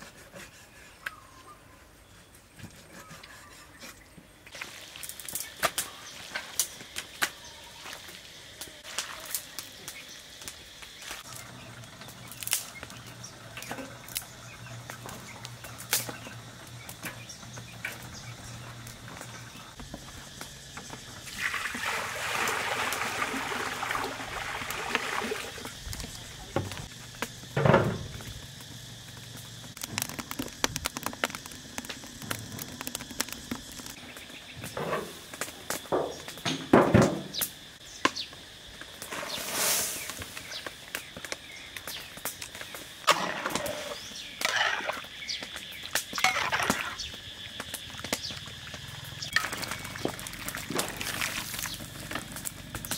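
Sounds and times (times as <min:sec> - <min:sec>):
wood fire crackling: 0:08.0 - 0:36.4, 0:38.3 - 0:52.9
sharp pops of burning sticks: 0:08.9 - 0:21.1, 0:25.8 - 0:36.6, 0:39.8 - 0:52.9.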